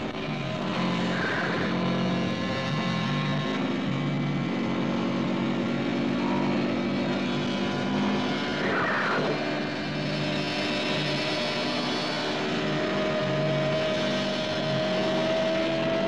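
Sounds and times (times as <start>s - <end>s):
motorcycle engines running: 0.0s - 16.0s
brief falling whine: 1.0s - 2.0s.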